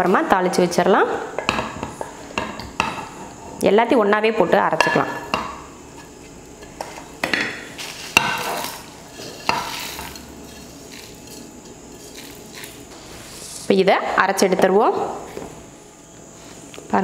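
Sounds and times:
spoon knocking and scraping dishes: 4.7 - 12.8.

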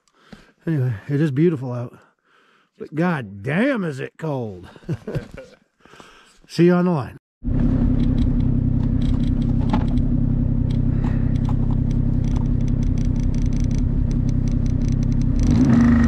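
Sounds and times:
snowmobile engine running: 7.5 - 16.0.

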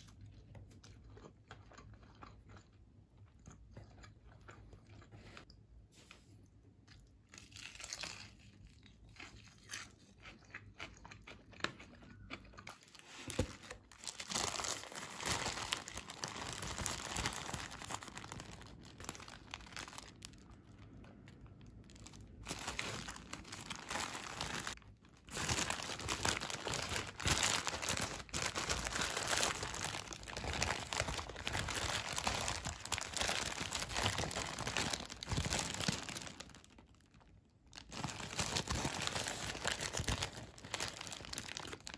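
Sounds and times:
paper wrapper crinkling: 12.9 - 41.9.

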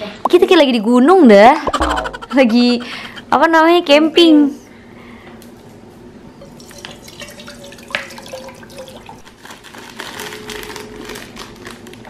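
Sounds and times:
water trickling and dripping: 6.5 - 9.2.

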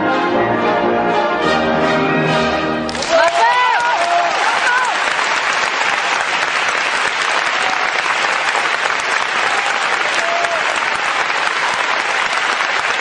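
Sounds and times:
audience applauding: 2.9 - 13.0.

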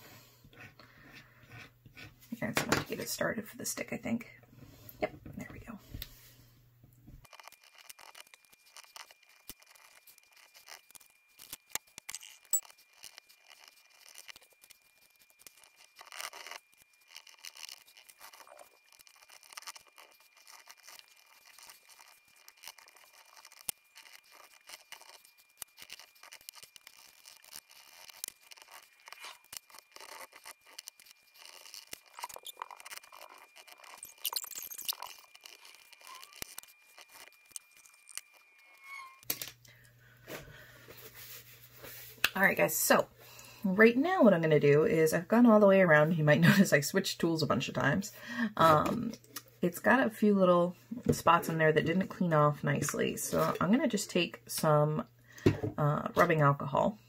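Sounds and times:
small tools scratching paint off disc: 7.2 - 39.3.

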